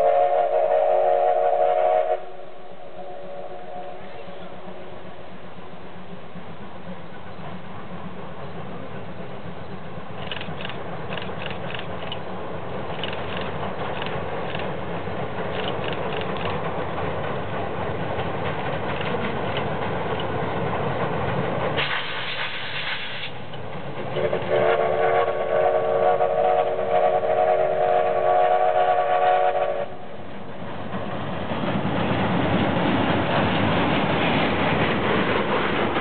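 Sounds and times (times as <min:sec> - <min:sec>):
steam whistle blast: 0:00.0 - 0:04.6, 0:24.2 - 0:30.0
steam hiss: 0:00.0 - 0:30.2
steam locomotive rumbling on bridge: 0:00.0 - 0:36.0.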